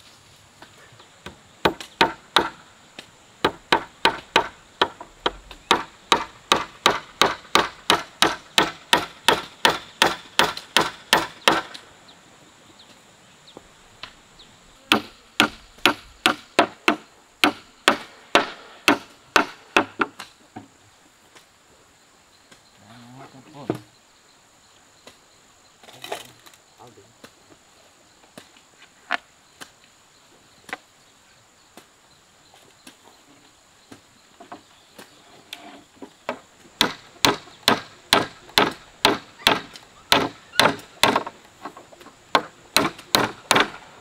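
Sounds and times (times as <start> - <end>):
hammer striking wooden plank: 1.2 - 2.6, 3.4 - 11.8, 14.9 - 20.2, 36.3 - 41.4, 42.3 - 43.8.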